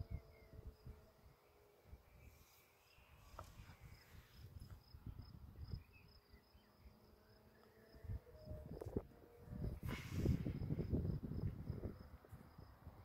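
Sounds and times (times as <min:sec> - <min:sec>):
wind rumble on microphone: 0:00.0 - 0:01.3, 0:03.2 - 0:06.2, 0:07.9 - 0:13.0
insects chirping: 0:00.0 - 0:13.0.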